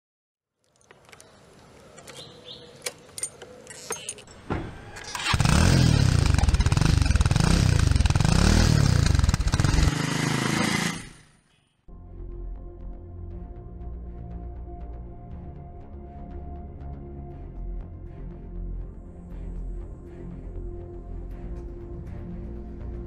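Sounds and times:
motorcycle engine revving: 0:05.0 - 0:11.4.

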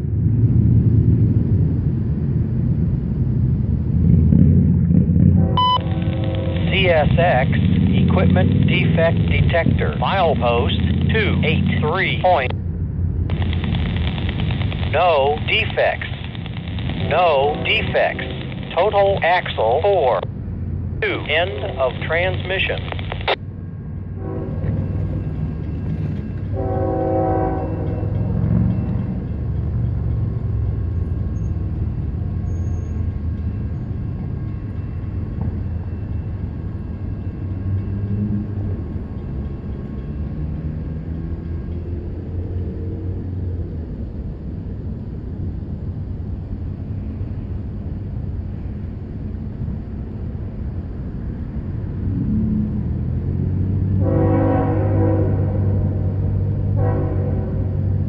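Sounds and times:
diesel locomotives rumbling: 0:00.0 - 0:58.0
train horn: 0:05.3 - 0:06.7, 0:24.2 - 0:25.3, 0:26.5 - 0:28.6, 0:54.0 - 0:58.0.

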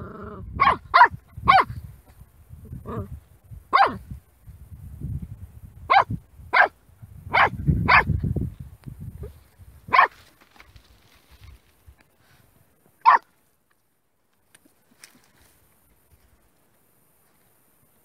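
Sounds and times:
rustling in dry brush: 0:08.3 - 0:12.6, 0:14.4 - 0:17.8
puppy yapping: 0:13.0 - 0:13.2.

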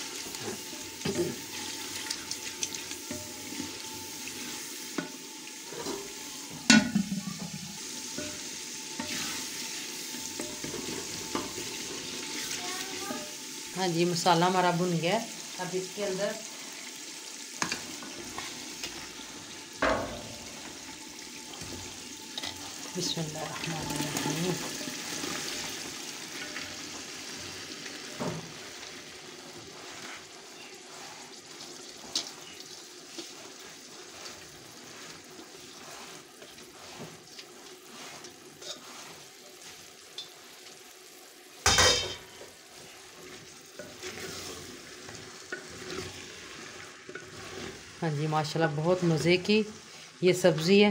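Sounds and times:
food sizzling in oil: 0:00.0 - 0:50.9
spoon knocking pot: 0:06.7 - 0:07.6.

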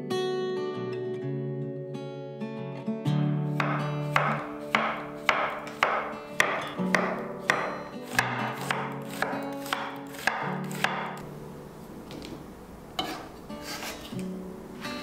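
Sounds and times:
soft guitar music: 0:00.0 - 0:15.0
knife chopping on wooden board: 0:03.6 - 0:11.2.

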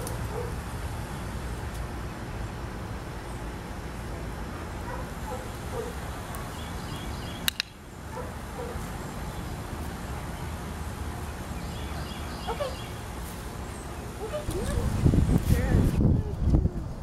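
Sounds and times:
steady low hum: 0:00.0 - 0:17.0
sharp clicks: 0:07.4 - 0:07.8.

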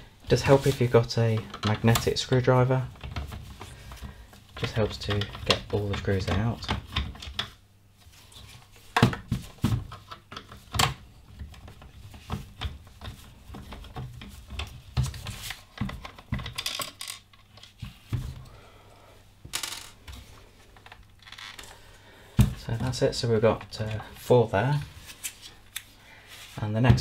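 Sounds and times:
plastic body handled: 0:00.3 - 0:07.6, 0:08.2 - 0:18.5, 0:26.4 - 0:27.0.

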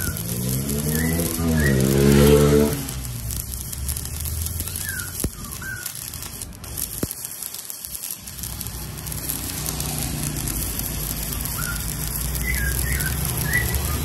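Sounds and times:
sharp ticks: 0:00.0 - 0:14.0
welding arc crackling hiss: 0:00.0 - 0:14.0.

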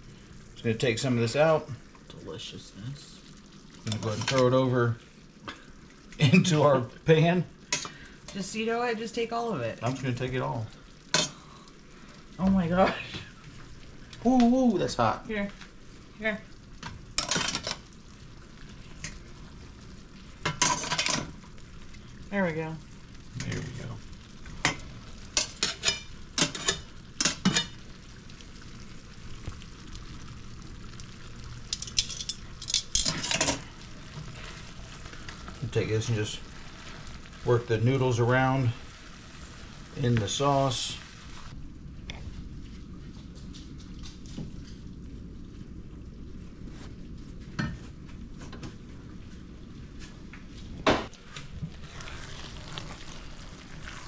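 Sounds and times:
pasta sizzling in a pan: 0:00.0 - 0:54.0
metal utensil scraping pan: 0:25.4 - 0:27.7.

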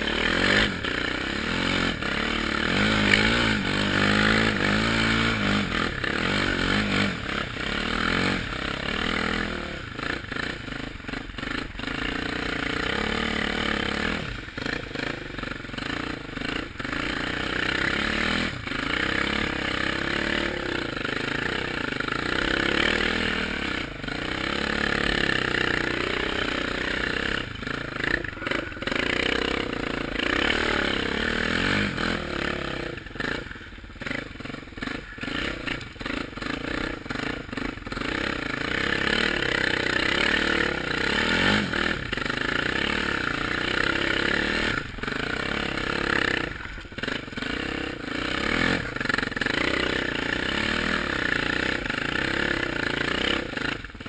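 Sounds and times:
quad bike engine revving: 0:00.0 - 0:54.0.

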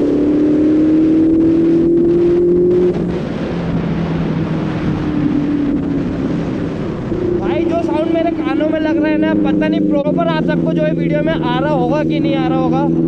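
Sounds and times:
motorcycle engine under throttle: 0:00.0 - 0:13.0.

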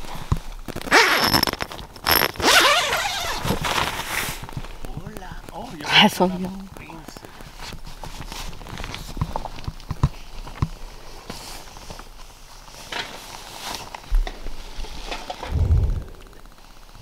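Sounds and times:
low microphone rumble: 0:15.4 - 0:16.7.

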